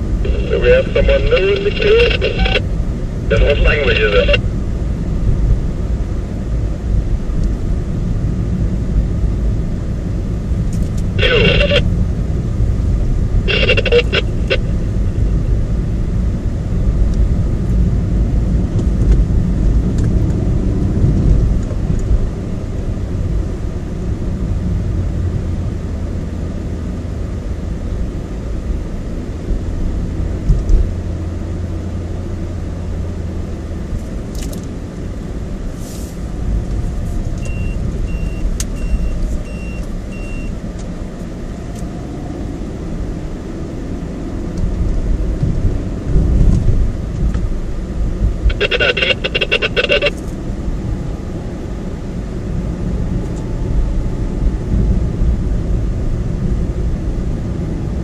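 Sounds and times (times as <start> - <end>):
car engine and tyre rumble: 0.0 - 58.0
short high beeps: 37.4 - 40.5.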